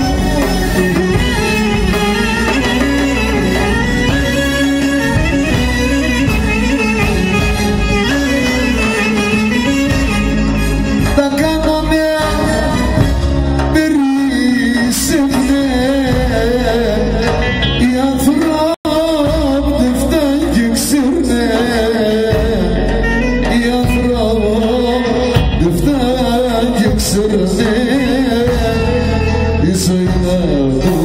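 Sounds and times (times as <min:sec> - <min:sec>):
man singing through pa: 0:00.0 - 0:03.6, 0:11.0 - 0:31.0
drum kit: 0:00.0 - 0:31.0.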